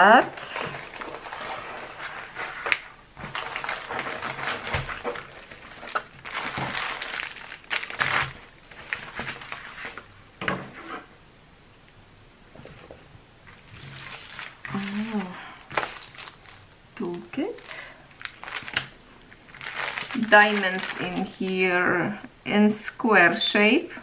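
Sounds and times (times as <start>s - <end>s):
plastic film crinkling: 0.1s - 10.2s, 13.4s - 21.8s.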